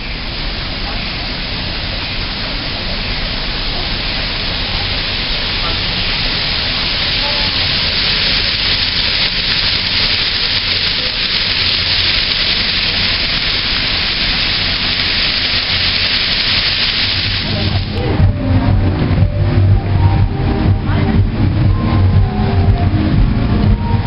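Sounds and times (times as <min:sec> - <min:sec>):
air-handling machinery hiss: 0:00.0 - 0:24.0
low hum: 0:17.3 - 0:24.0.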